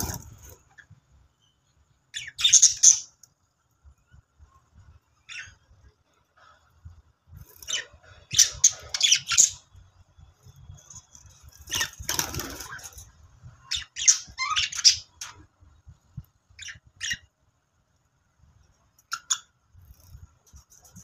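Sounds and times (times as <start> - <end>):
budgerigars chirping and squawking: 0.0 - 0.8, 2.2 - 3.2, 5.2 - 5.6, 7.5 - 9.7, 10.8 - 15.5, 16.6 - 17.3, 19.0 - 20.1.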